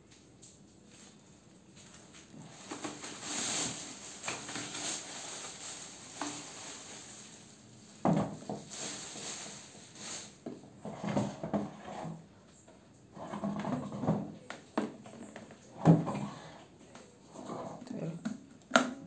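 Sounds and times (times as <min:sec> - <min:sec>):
plastic wrapping crinkling: 0:00.9 - 0:10.4.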